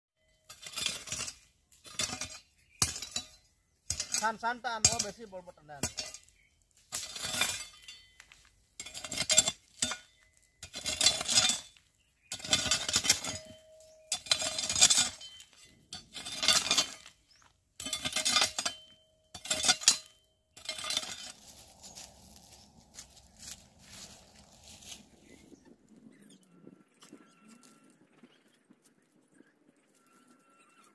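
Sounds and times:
hoe scraping stony soil: 0.2 - 25.7.

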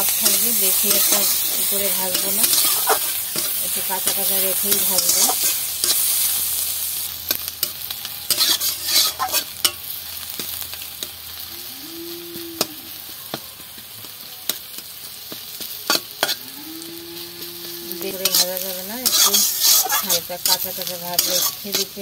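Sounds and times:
metal spatula scraping pan: 0.0 - 6.1, 7.7 - 9.8, 17.4 - 22.0
onions sizzling in hot oil: 0.0 - 22.0.

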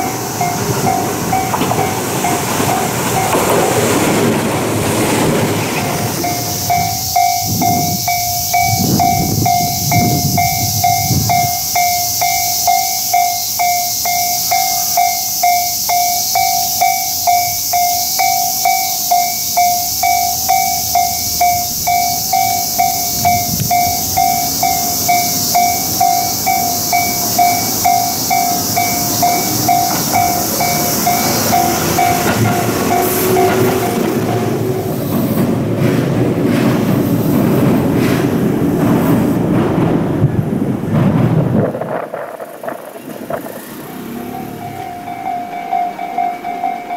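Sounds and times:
level crossing bell ringing: 0.0 - 3.5, 6.2 - 34.5, 44.2 - 46.9
electric train passing on rails: 0.0 - 46.9.

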